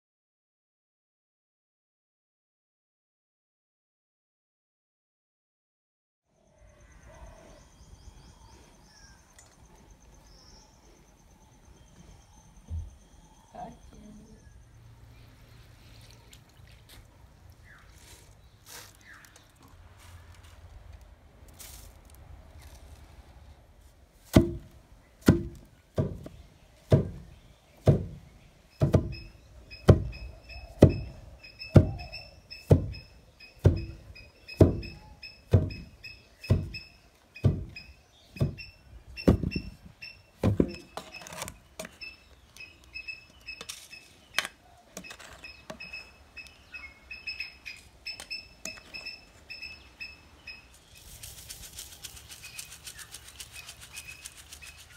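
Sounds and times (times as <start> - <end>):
wooden pestle thudding in mortar: 24.3 - 28.2, 28.8 - 29.2, 29.8 - 30.2, 31.7 - 32.1, 32.7 - 32.9, 33.6 - 34.0, 34.6 - 35.9, 36.5 - 36.8, 37.4 - 37.8, 39.3 - 39.7.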